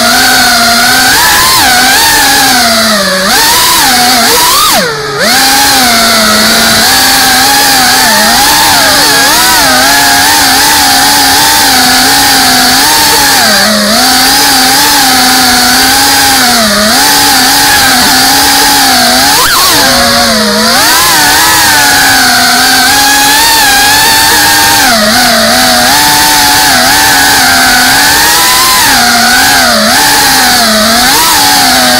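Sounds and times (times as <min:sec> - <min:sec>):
drone motors buzzing: 0:00.0 - 0:31.9.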